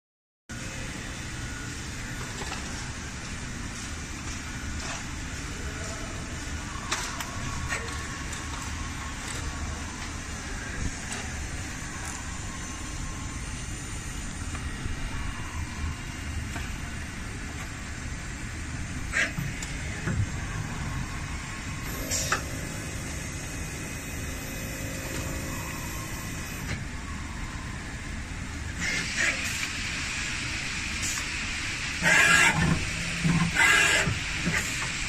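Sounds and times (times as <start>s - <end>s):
lathe machine hum: 18.2s - 27.3s.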